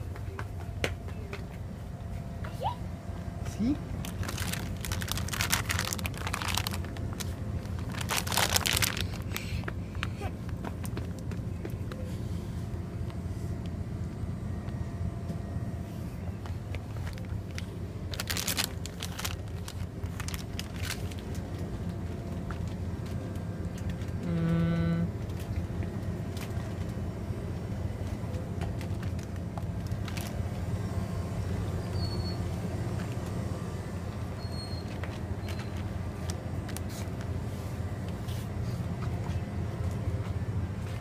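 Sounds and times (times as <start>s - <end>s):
shop background hum: 0.0s - 41.0s
plastic bag crinkling: 4.0s - 10.1s, 17.0s - 22.0s, 29.0s - 30.4s.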